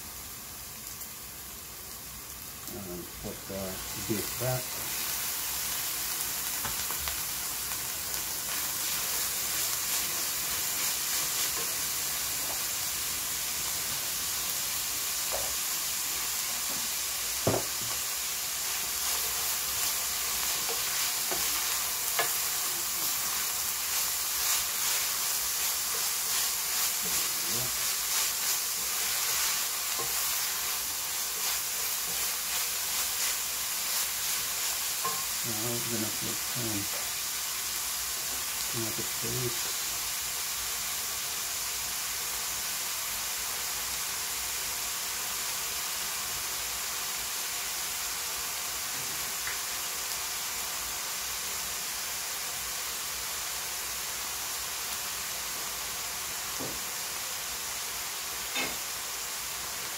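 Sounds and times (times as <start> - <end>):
meat sizzling in a frying pan: 0.0 - 59.9
wooden spoon scraping a pan: 17.5 - 35.4.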